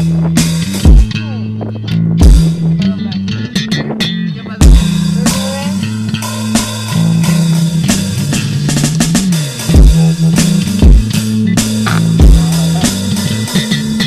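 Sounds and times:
bass line: 0.0s - 14.0s
heavy kick-drum hits: 0.9s - 1.1s, 4.6s - 4.9s, 9.7s - 10.0s, 10.8s - 11.1s, 11.7s - 12.8s
rock band playing: 4.7s - 14.0s.

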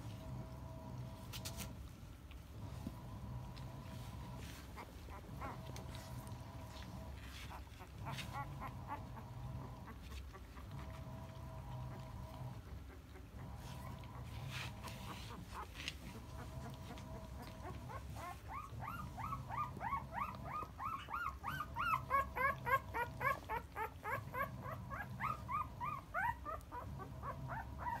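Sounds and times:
puppy crying squeaks: 17.6s - 28.0s.

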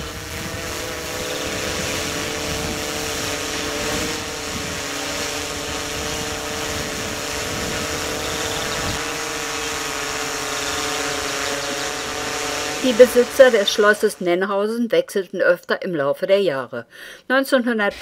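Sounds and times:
mechanical hum: 0.0s - 14.3s
constant whine: 0.0s - 14.5s.

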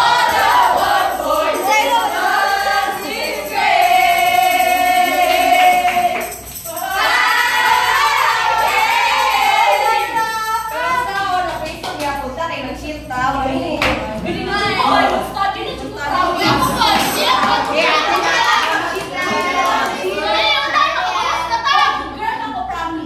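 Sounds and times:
group singing loudly: 0.0s - 10.9s, 13.9s - 22.0s
tambourine shaking: 0.0s - 13.8s, 16.1s - 19.4s.

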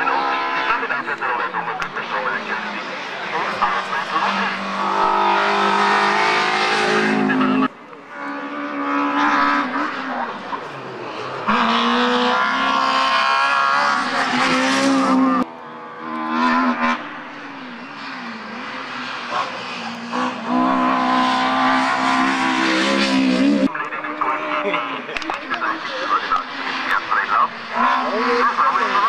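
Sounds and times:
rally cars racing past: 0.0s - 29.0s.

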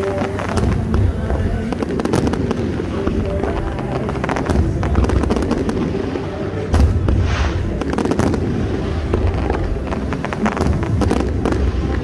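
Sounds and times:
fireworks bangs and crackles: 0.0s - 12.0s
hissing crackle: 0.0s - 12.0s
low rumble: 0.0s - 12.0s
deep firework boom: 6.7s - 12.0s.

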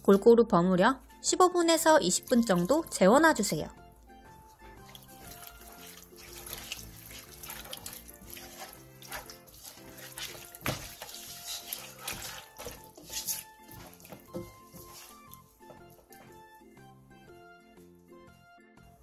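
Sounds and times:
background music: 0.0s - 19.0s
wet squelches and sloshing: 3.8s - 16.6s.

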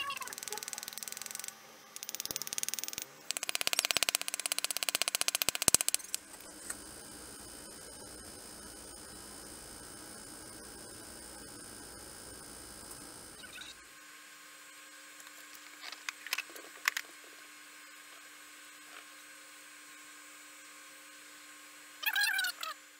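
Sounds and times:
faint steady hum: 0.0s - 22.9s
rapid clicking: 0.2s - 6.2s.

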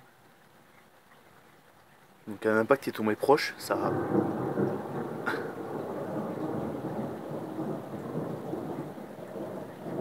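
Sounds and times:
thunder rumbling: 3.7s - 10.0s.

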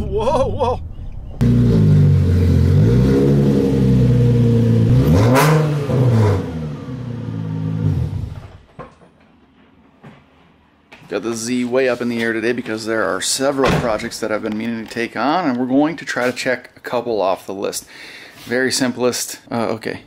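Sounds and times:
car engine revving: 1.4s - 8.6s.

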